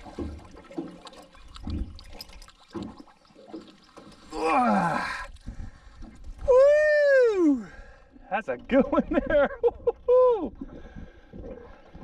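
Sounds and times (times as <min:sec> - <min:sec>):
person exclaiming: 0:06.5 - 0:07.7.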